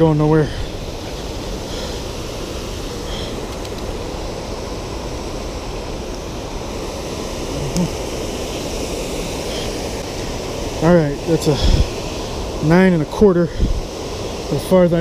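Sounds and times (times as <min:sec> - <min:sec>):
steady rushing noise: 0:00.0 - 0:15.0
faint clicks: 0:03.5 - 0:03.9.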